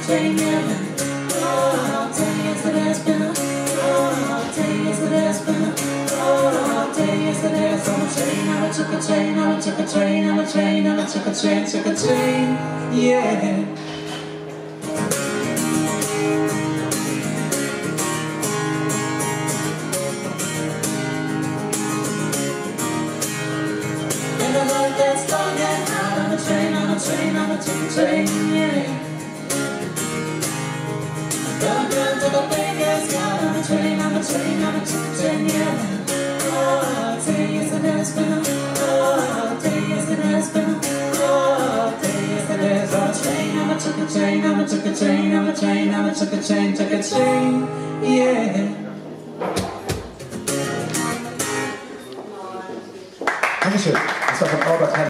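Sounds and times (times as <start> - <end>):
man singing along: 0.0 - 13.8, 24.4 - 29.1, 31.5 - 49.2
woman singing: 0.0 - 13.8, 24.4 - 29.3, 31.5 - 48.9
rhythmic guitar: 0.0 - 52.3.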